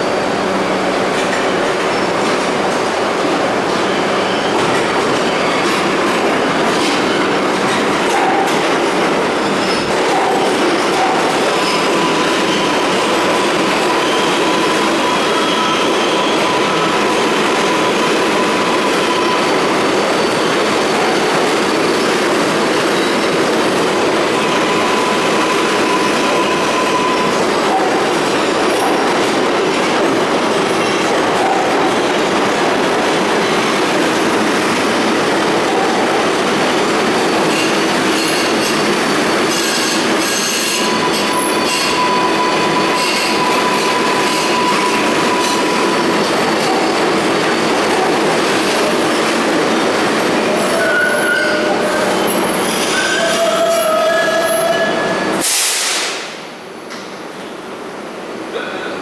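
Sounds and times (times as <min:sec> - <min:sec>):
subway train wheels rumbling on rails: 0:00.0 - 0:59.0
high wheel squeal: 0:03.7 - 0:07.4, 0:09.3 - 0:22.2, 0:24.2 - 0:29.2, 0:35.6 - 0:55.5.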